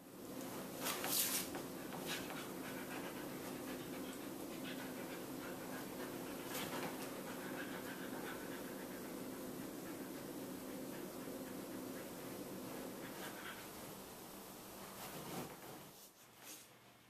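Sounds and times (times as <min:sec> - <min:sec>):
dog panting: 0:01.5 - 0:14.1.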